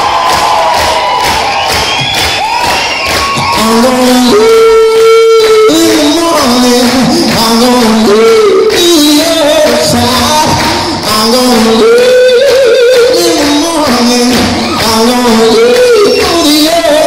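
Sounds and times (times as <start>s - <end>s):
live music: 0.0s - 17.0s
man singing wordless notes: 3.5s - 17.0s.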